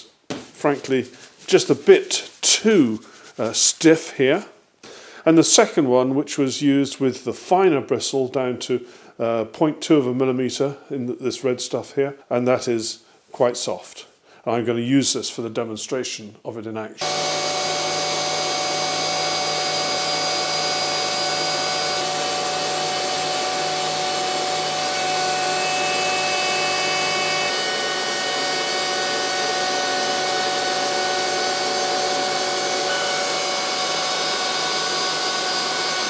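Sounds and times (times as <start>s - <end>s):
dust extractor rushing: 17.0s - 36.0s
router cutting wood with whine: 17.0s - 36.0s.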